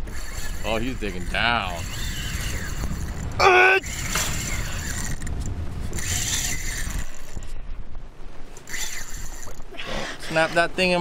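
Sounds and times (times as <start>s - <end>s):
fishing reel drag clicking: 0.0s - 7.5s, 8.5s - 9.7s
person yelling: 3.4s - 3.8s.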